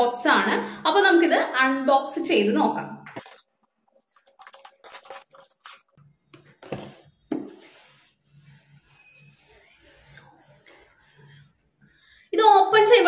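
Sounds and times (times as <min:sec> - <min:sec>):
paper and cardboard rubbing: 0:06.6 - 0:11.7.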